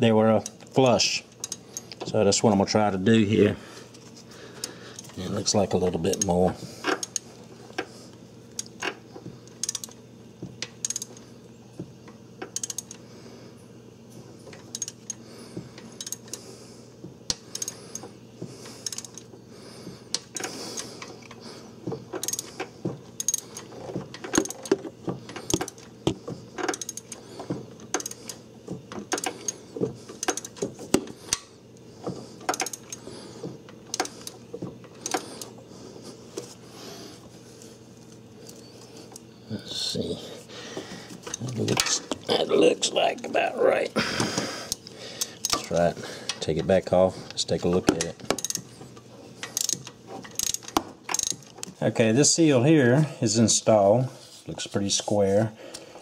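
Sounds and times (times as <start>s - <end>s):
steady low hum: 0.0s - 56.0s
hand ratchet clicking: 1.3s - 2.1s, 6.0s - 7.2s, 8.5s - 10.0s, 10.6s - 11.2s, 12.4s - 13.0s, 14.5s - 15.2s, 15.8s - 16.4s, 17.3s - 18.2s, 18.8s - 19.3s, 20.1s - 31.5s, 32.1s - 33.1s, 33.7s - 35.6s, 48.0s - 48.7s, 49.4s - 51.8s.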